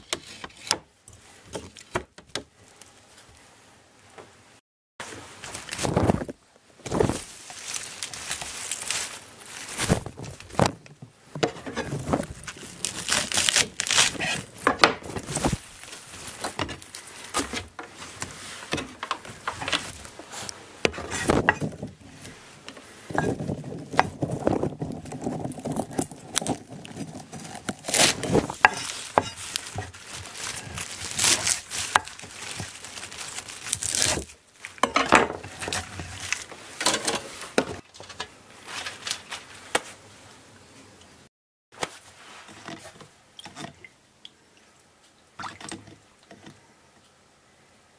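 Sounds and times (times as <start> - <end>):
herb stems rustling and tearing: 5.4 - 11.0, 11.8 - 34.8, 35.4 - 36.6.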